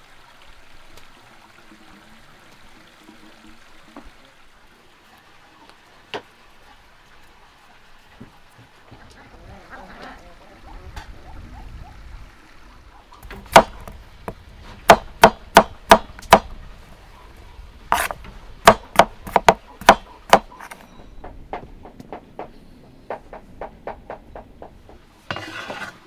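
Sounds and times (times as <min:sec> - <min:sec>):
knife chopping on wooden board: 0:13.5 - 0:13.8, 0:14.9 - 0:16.4, 0:17.9 - 0:20.8
knife scraping potato peel: 0:17.9 - 0:18.2, 0:25.3 - 0:26.0.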